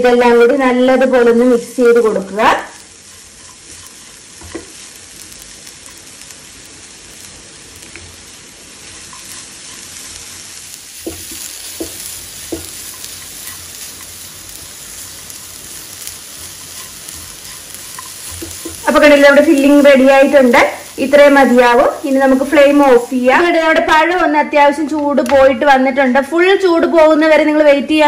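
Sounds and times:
steady sizzle: 0:00.0 - 0:28.0
spatula scraping a pan: 0:02.5 - 0:06.0, 0:08.8 - 0:23.0.

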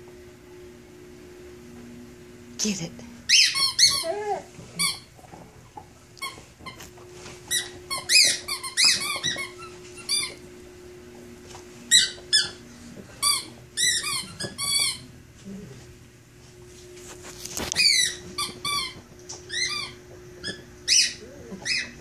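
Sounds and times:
squeaky dog toy squeaking: 0:03.3 - 0:04.2.

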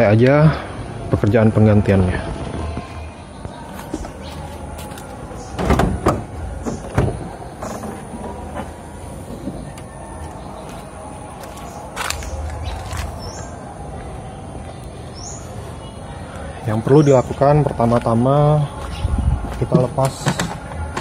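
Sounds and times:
car bonnet latch and hinges clunking: 0:05.5 - 0:08.7
bird chirping: 0:09.3 - 0:13.8, 0:14.6 - 0:19.3.

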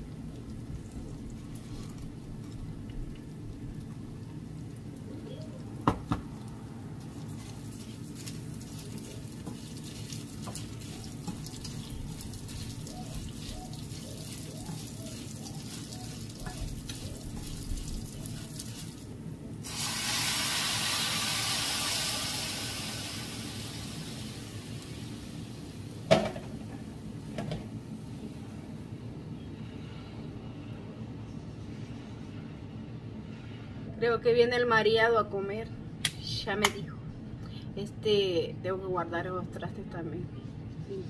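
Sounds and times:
rice frying in a pan: 0:06.0 - 0:27.4
water sizzling in hot pan: 0:07.4 - 0:26.1.

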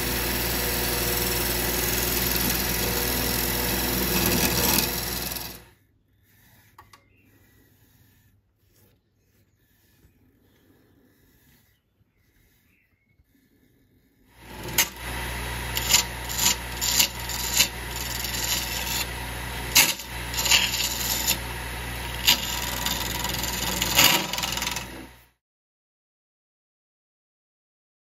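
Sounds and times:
lathe motor hum: 0:00.0 - 0:05.7, 0:14.4 - 0:25.2
sharp scrapes: 0:00.9 - 0:25.1
hand sanding rubbing hiss: 0:06.2 - 0:14.3.

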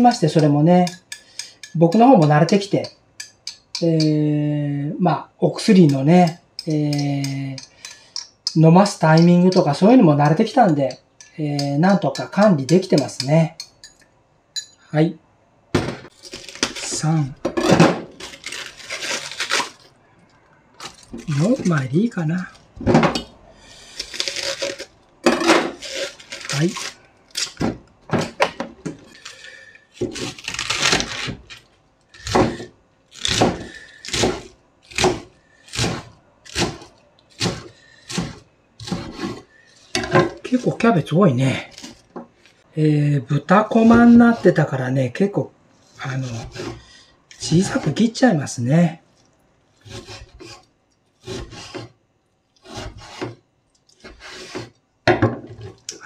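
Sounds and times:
knife slicing cabbage on board: 0:30.0 - 0:31.5, 0:32.2 - 0:39.4, 0:49.8 - 0:50.6, 0:51.2 - 0:51.9, 0:52.6 - 0:53.4, 0:54.0 - 0:54.7.

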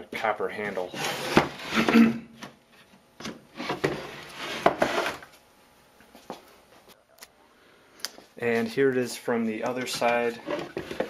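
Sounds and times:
wood scraping and rubbing: 0:00.8 - 0:02.0, 0:03.6 - 0:05.3, 0:09.8 - 0:11.0.

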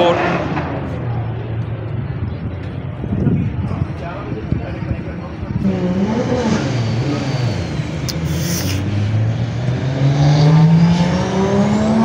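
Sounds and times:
short hiss: 0:08.1 - 0:08.9.

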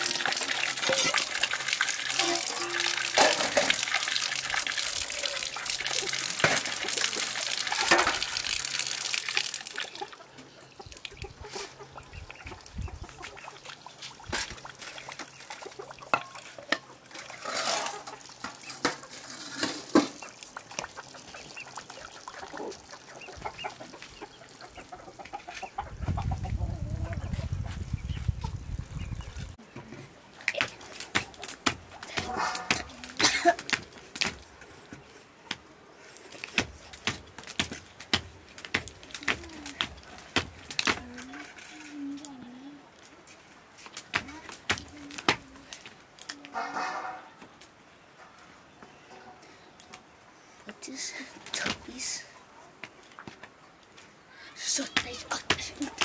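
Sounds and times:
water pouring: 0:00.0 - 0:11.2, 0:12.5 - 0:25.0.

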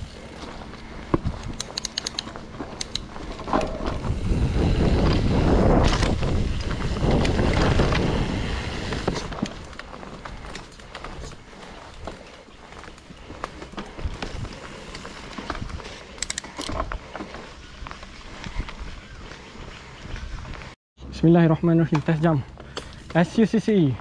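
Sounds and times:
bike clicks and rattles: 0:00.0 - 0:20.8, 0:21.9 - 0:24.0
tyre noise on dirt: 0:00.0 - 0:20.8
wind buffeting microphone: 0:03.0 - 0:10.5.

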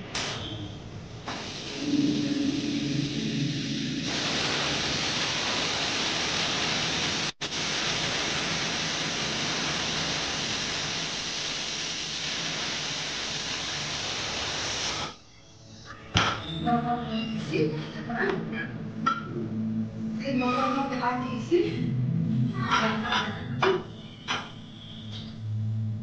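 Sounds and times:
pressure cooker hissing: 0:01.3 - 0:15.2.

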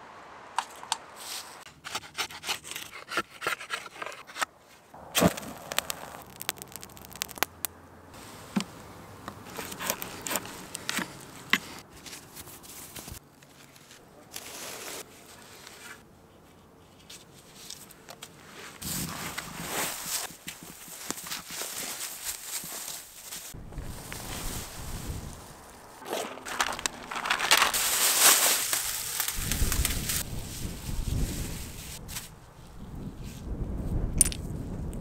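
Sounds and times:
wood handling scrapes and clicks: 0:00.6 - 0:04.5, 0:09.3 - 0:16.0.

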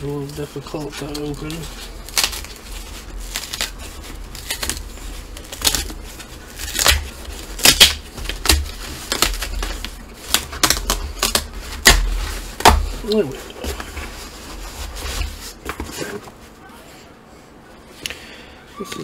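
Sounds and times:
packaging torn open by hand: 0:00.2 - 0:02.6, 0:03.2 - 0:12.8.

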